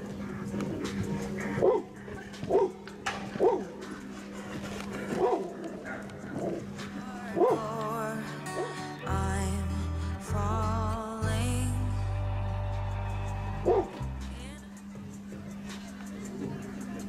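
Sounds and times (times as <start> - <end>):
background music: 0.0 - 17.0
dog barking: 1.5 - 3.8, 5.0 - 6.7, 7.4 - 7.6, 13.7 - 13.9.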